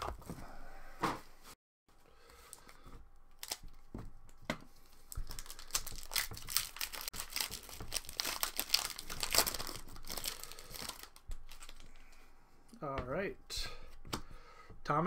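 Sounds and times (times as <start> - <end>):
foil wrapper tearing and crinkling: 3.3 - 3.8, 5.1 - 11.9.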